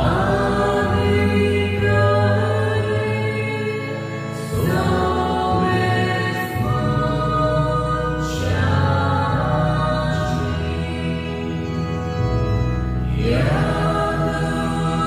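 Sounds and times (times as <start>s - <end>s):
choir voices: 0.0s - 15.0s
low bass: 4.6s - 15.0s.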